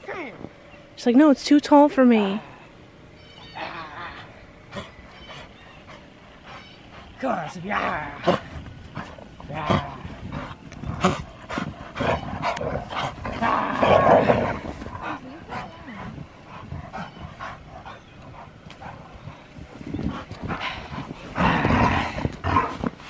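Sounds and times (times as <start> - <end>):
dogs making playful noises: 3.2 - 23.0.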